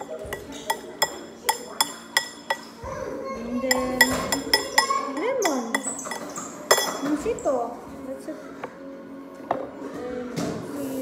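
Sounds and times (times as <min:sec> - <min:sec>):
metal utensil clinking on dish: 0:00.0 - 0:02.8, 0:03.6 - 0:07.5.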